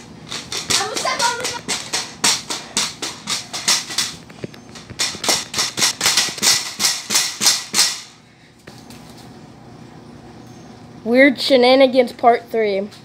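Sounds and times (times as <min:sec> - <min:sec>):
pogo stick bouncing on concrete: 0:00.0 - 0:09.3.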